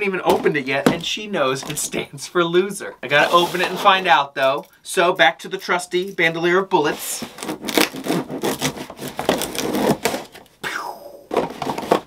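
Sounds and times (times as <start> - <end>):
packing tape slit and cardboard ripped: 7.3 - 10.4.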